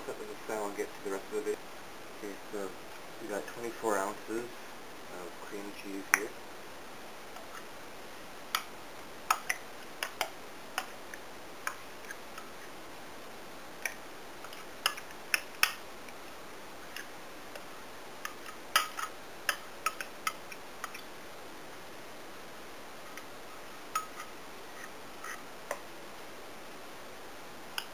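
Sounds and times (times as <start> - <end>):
faint steady hiss: 0.0 - 27.9
sharp clicks and light taps: 9.3 - 12.5, 16.9 - 21.1.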